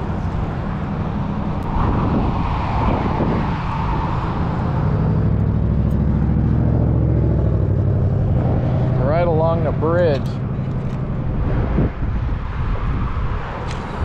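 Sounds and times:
motor vehicle engine running: 0:00.0 - 0:01.8, 0:04.0 - 0:12.8.

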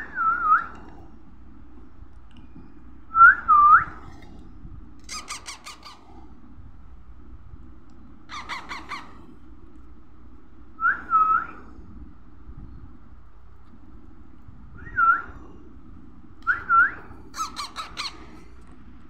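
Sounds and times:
parakeet chick harsh squawks: 0:05.1 - 0:06.0, 0:08.3 - 0:09.2, 0:17.3 - 0:18.3
parakeet chick whistled calls: 0:05.1 - 0:06.0, 0:08.3 - 0:09.2, 0:17.4 - 0:18.2.

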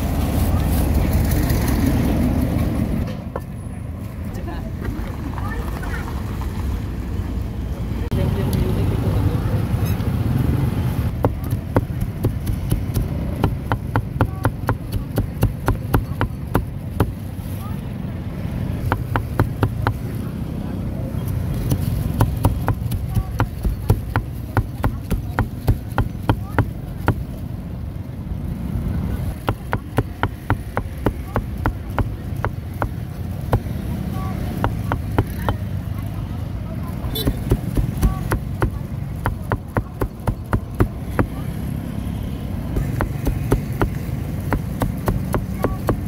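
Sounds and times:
cleaver chopping on a block: 0:11.1 - 0:17.2, 0:18.9 - 0:20.0, 0:21.6 - 0:27.2, 0:29.4 - 0:33.7, 0:34.6 - 0:35.6, 0:37.2 - 0:41.4, 0:42.8 - 0:46.0
knife chopping on chopping board: 0:42.8 - 0:46.0.

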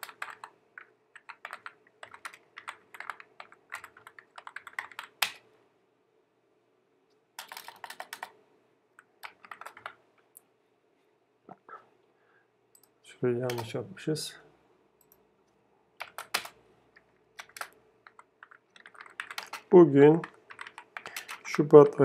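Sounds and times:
computer keyboard typing: 0:00.0 - 0:05.4, 0:07.4 - 0:08.4, 0:09.2 - 0:10.0, 0:12.8 - 0:13.7, 0:16.0 - 0:21.7.

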